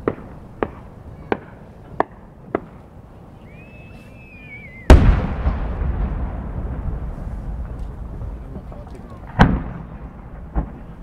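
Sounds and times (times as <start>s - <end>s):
firework pops: 0.0s - 2.8s, 8.6s - 11.0s
firework whistle: 3.3s - 5.4s
aerial shell boom with echo: 4.9s - 8.3s.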